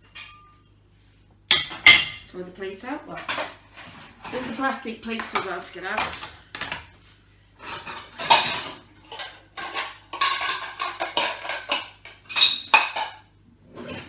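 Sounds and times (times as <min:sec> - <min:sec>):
plastic dishes clattering: 0:03.1 - 0:07.0, 0:07.6 - 0:14.0.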